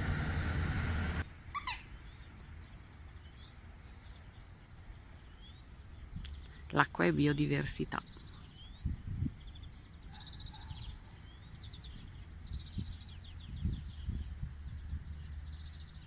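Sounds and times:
low rumble: 0.0 - 1.2
songbirds trilling: 1.4 - 16.0.

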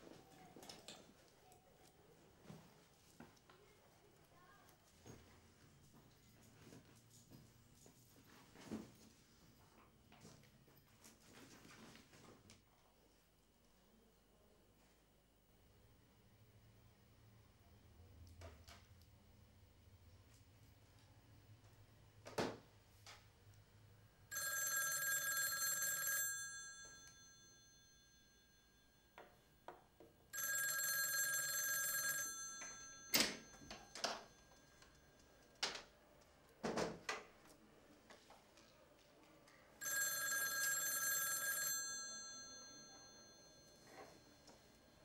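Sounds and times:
telephone bell ringing: 24.3 - 29.5, 30.3 - 35.2, 39.8 - 45.0.

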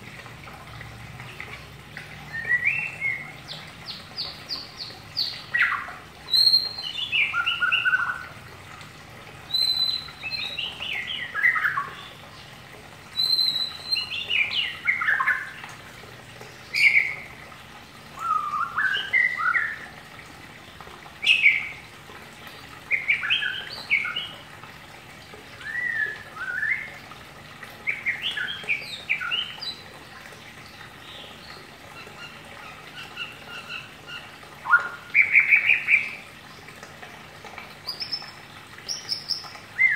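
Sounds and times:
songbird warbling: 18.2 - 19.9, 31.9 - 36.2.

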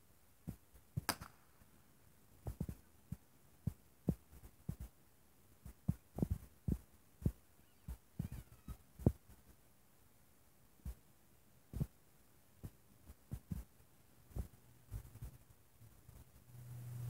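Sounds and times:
firework pops and crackles: 1.0 - 1.6.

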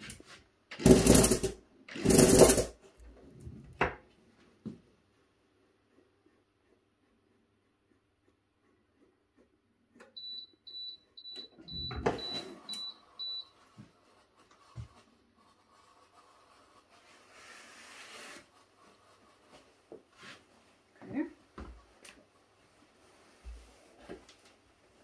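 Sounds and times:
short high beeps: 10.2 - 13.5.

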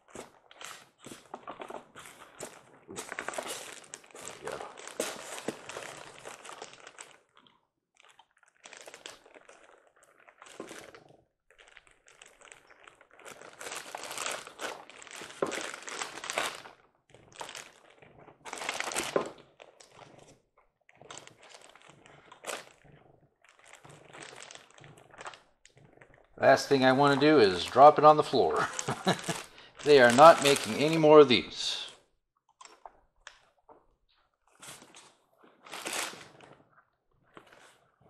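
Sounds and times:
packaging crinkling and rustling: 0.0 - 31.7, 34.5 - 36.7, 37.3 - 37.9.

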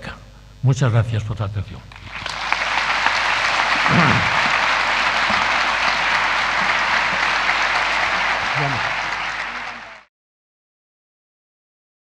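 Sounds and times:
audience applauding: 1.9 - 10.1.

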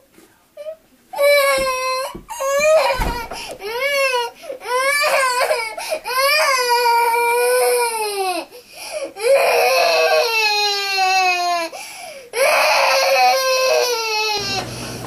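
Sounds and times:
girl crying in high wails: 1.2 - 11.8, 12.4 - 14.6
girl catching breath: 8.5 - 9.2, 11.8 - 12.3.

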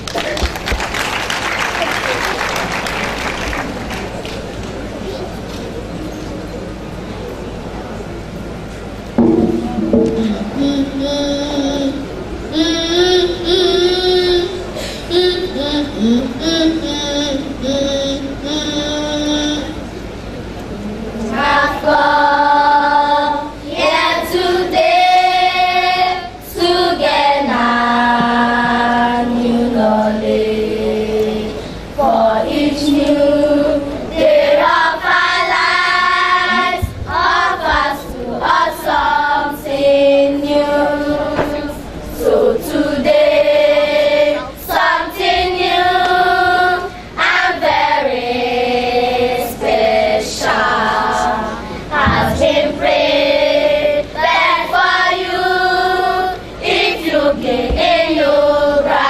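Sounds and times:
children singing together: 9.2 - 19.8, 21.2 - 59.0.

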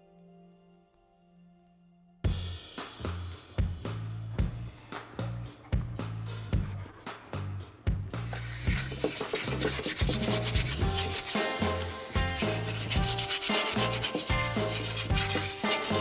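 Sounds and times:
background music with bass: 2.2 - 16.0
stiff brush scrubbing metal: 8.3 - 16.0.

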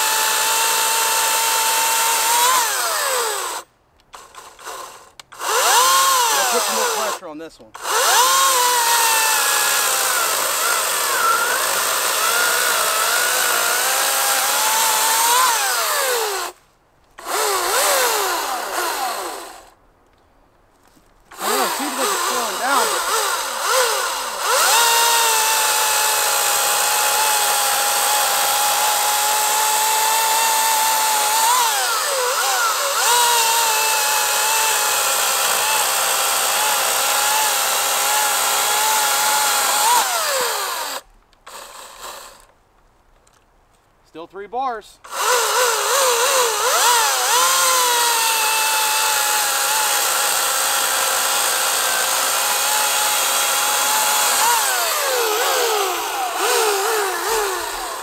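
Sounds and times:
electric chainsaw motor whine: 0.0 - 7.2, 7.8 - 16.6, 17.2 - 19.8, 21.3 - 42.5, 45.1 - 58.0
chain rasping through wood: 45.1 - 58.0.

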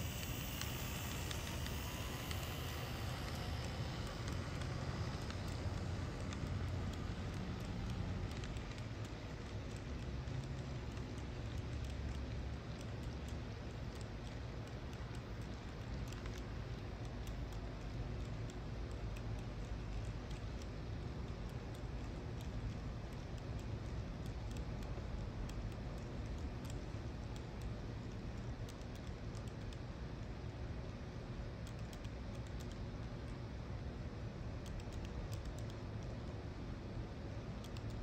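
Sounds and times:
model train wheels clicking on rails: 0.0 - 27.4
steady low hum: 0.0 - 38.0.

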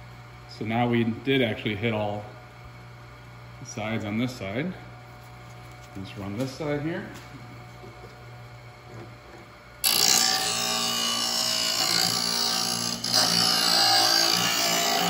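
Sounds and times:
grinder motor humming: 0.7 - 15.0
abrasive wheel grinding steel: 9.8 - 15.0.

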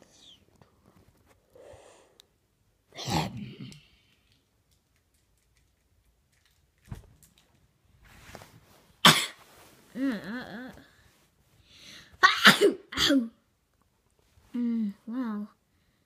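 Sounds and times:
person sneezing: 2.9 - 3.7, 9.0 - 9.5, 12.2 - 13.3.

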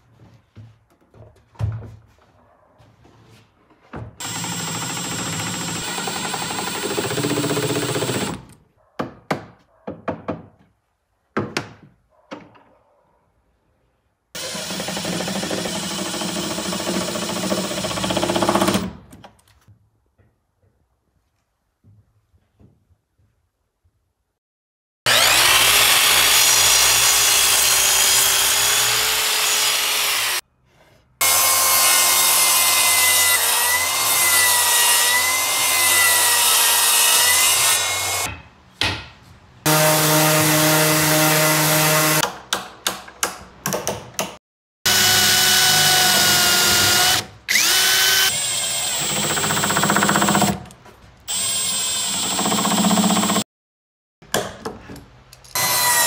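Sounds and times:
miter saw cutting wood: 25.1 - 30.4.

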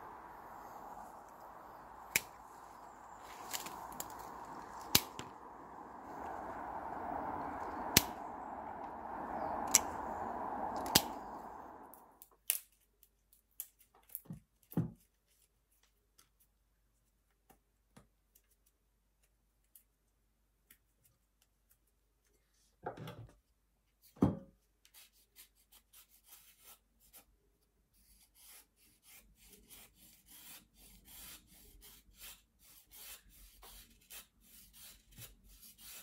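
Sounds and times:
background hiss: 0.0 - 12.2
pruning shears snipping stems: 0.4 - 5.3.

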